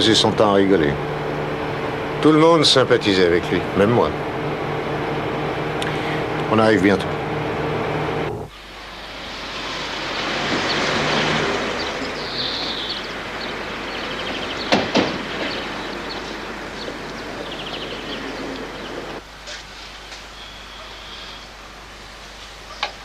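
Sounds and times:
car engine humming inside cabin: 0:00.0 - 0:19.2
car engine and tyre noise: 0:00.0 - 0:20.3
birds chirping: 0:00.0 - 0:23.0
car doors shutting: 0:12.6 - 0:19.2.

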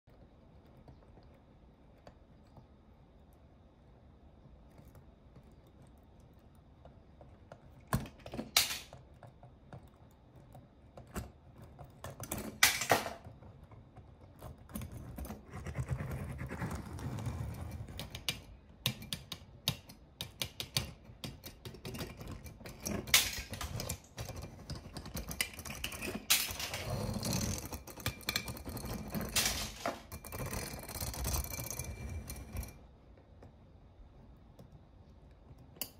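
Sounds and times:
toy cars clattering: 0:08.0 - 0:09.0, 0:12.3 - 0:13.2, 0:22.4 - 0:31.7.

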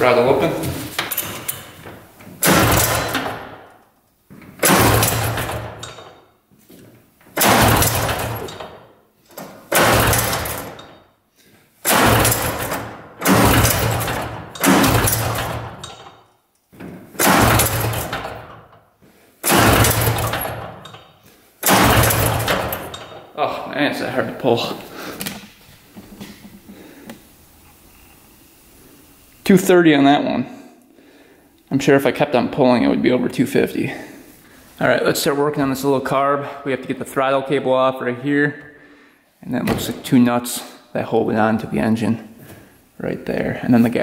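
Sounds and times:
engine pull-starter pulls: 0:02.4 - 0:03.4, 0:04.6 - 0:06.1, 0:07.4 - 0:08.6, 0:09.7 - 0:10.9, 0:11.8 - 0:16.1, 0:17.2 - 0:18.6, 0:19.4 - 0:21.0, 0:21.6 - 0:23.2.

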